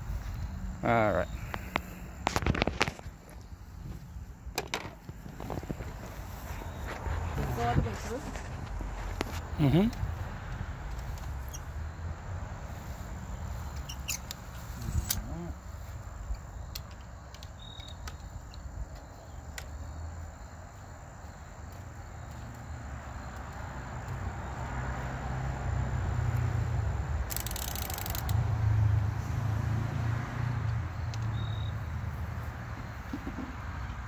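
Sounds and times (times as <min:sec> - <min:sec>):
high insect trill: 0:00.0 - 0:34.0
wind rumbling on microphone: 0:01.4 - 0:12.3, 0:14.4 - 0:15.5
crossbow handling clicks: 0:13.8 - 0:15.3, 0:16.2 - 0:19.7, 0:27.3 - 0:28.4, 0:31.1 - 0:31.3.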